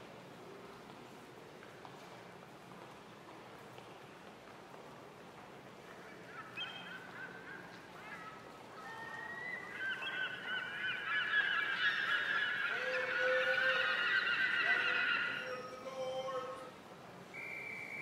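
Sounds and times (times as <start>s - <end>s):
flock of birds calling: 5.9s - 16.6s.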